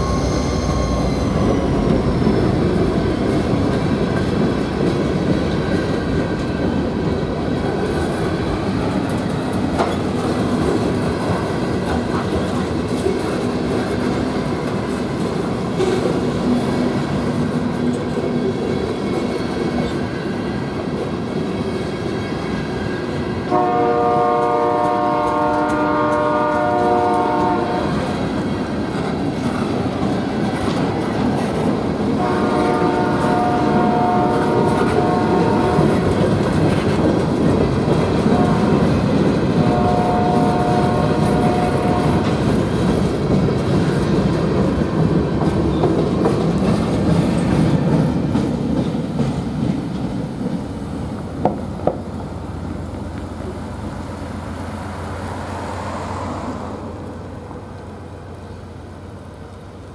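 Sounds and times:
locomotive horn blasts: 0:23.5 - 0:28.0, 0:32.2 - 0:36.0, 0:38.2 - 0:39.0, 0:39.6 - 0:42.4
freight cars rumbling over rail joints: 0:24.4 - 0:58.9.

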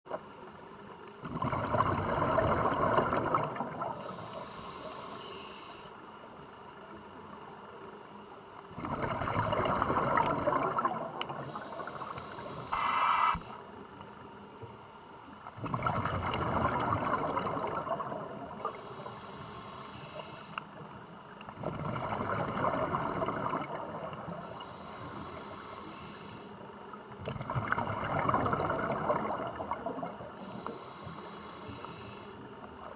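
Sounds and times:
diver breathing through regulator: 0:04.0 - 0:06.0, 0:11.4 - 0:13.6, 0:18.6 - 0:20.6, 0:24.4 - 0:26.6, 0:30.4 - 0:32.4.

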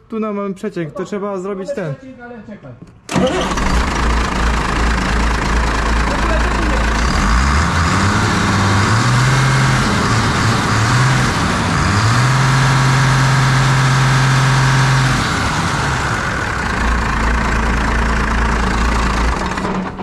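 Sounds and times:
diesel engine revving: 0:03.1 - 0:20.0.

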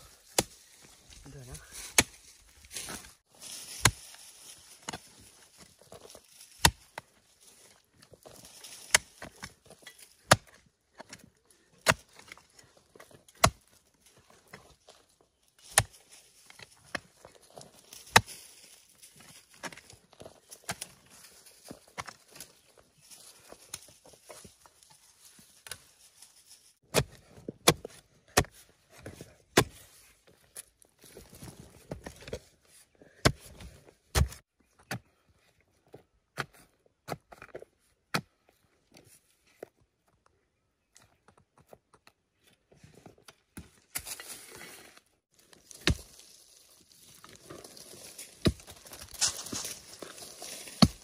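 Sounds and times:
soil crumbling: 0:00.0 - 0:35.3, 0:42.8 - 0:51.0
hoe striking soil: 0:00.2 - 0:00.6, 0:01.9 - 0:02.2, 0:03.7 - 0:04.2, 0:04.8 - 0:07.0, 0:08.3 - 0:13.9, 0:15.6 - 0:18.4, 0:19.2 - 0:22.5, 0:26.8 - 0:30.0, 0:33.2 - 0:35.1, 0:43.2 - 0:51.0.

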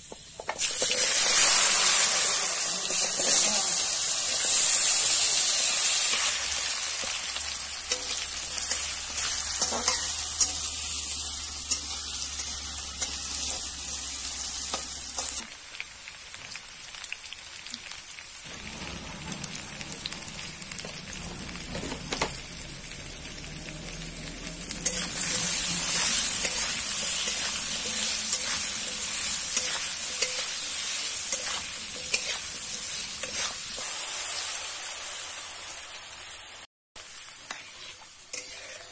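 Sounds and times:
potatoes frying and sizzling: 0:00.0 - 0:38.9
metal spatula scraping pan: 0:06.2 - 0:10.7, 0:24.8 - 0:33.9, 0:37.5 - 0:38.9.

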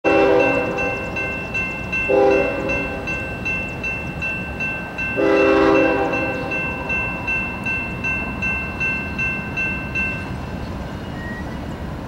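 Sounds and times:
locomotive horn blasts: 0:00.0 - 0:01.2, 0:02.1 - 0:03.2, 0:05.2 - 0:06.8
crossing warning bell ringing: 0:00.0 - 0:11.9
train rumble: 0:00.1 - 0:12.0.

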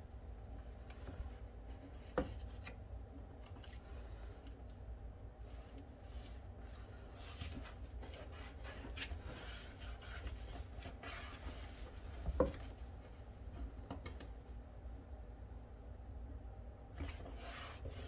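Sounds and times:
hands brushing paper: 0:05.5 - 0:12.2.

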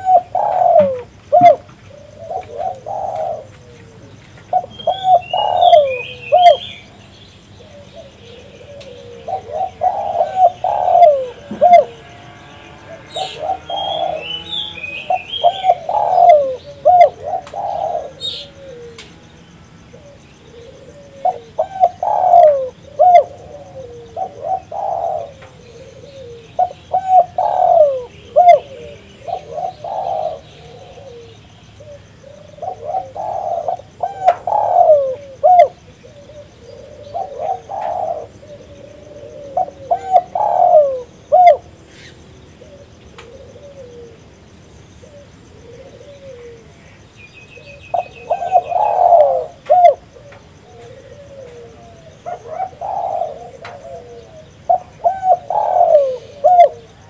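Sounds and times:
dove cooing: 0:00.0 - 0:57.0.

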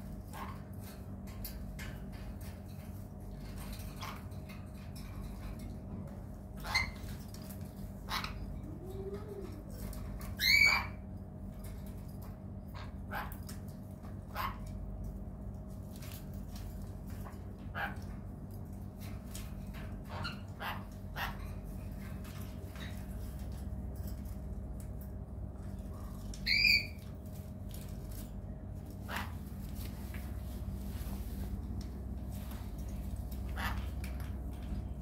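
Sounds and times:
steady low hum: 0:00.0 - 0:35.0
parrots calling: 0:06.6 - 0:08.5, 0:09.7 - 0:11.0, 0:20.0 - 0:21.5, 0:26.2 - 0:27.4, 0:28.9 - 0:29.5, 0:32.9 - 0:34.7
loud parrot squawk: 0:10.4 - 0:11.0, 0:26.4 - 0:27.0, 0:33.5 - 0:33.8.

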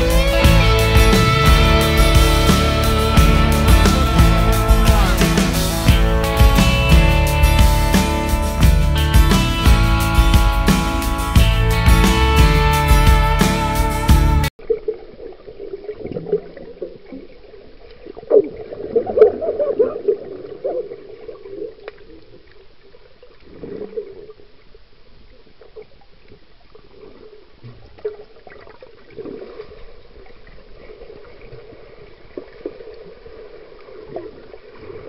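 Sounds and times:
underwater bubbles and water movement: 0:14.6 - 0:35.0.

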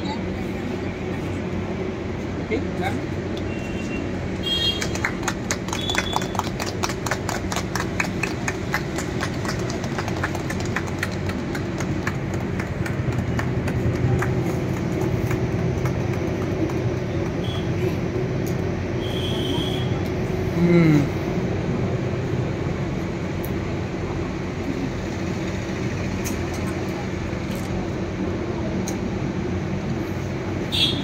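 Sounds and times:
group clapping in rhythm: 0:04.6 - 0:17.7.

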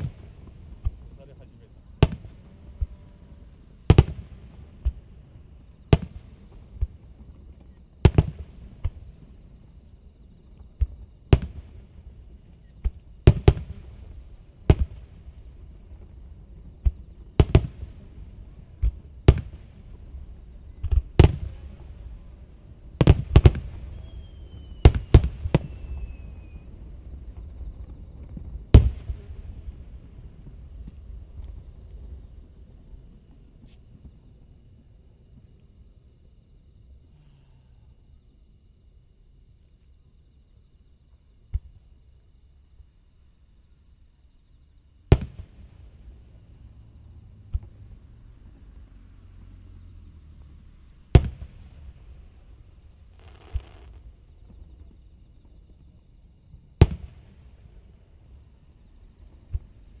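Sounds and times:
insects trilling: 0:00.0 - 1:00.0
distant firework bangs: 0:02.0 - 0:03.1, 0:03.9 - 0:05.1, 0:05.9 - 0:07.1, 0:08.0 - 0:09.2, 0:10.8 - 0:12.0, 0:12.8 - 0:22.2, 0:22.9 - 0:32.2, 0:45.1 - 0:46.2, 0:51.1 - 0:52.5, 0:53.2 - 0:54.9, 0:56.8 - 0:57.6, 0:59.3 - 0:59.8.

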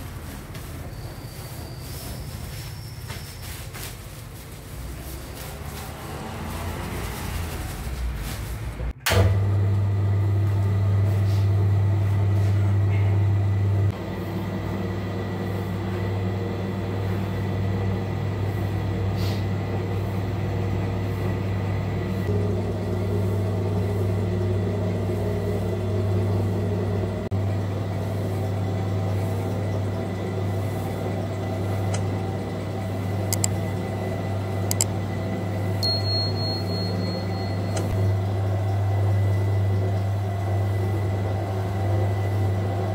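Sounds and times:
dough mixer motor humming: 0:09.2 - 0:42.9.

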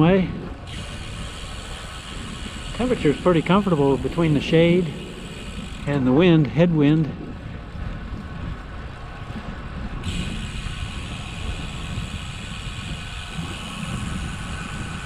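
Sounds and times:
bicycle tyre noise on pavement: 0:00.0 - 0:15.0
wind buffeting microphone: 0:00.0 - 0:15.0
steady higher hiss: 0:00.7 - 0:06.2, 0:10.0 - 0:15.0.

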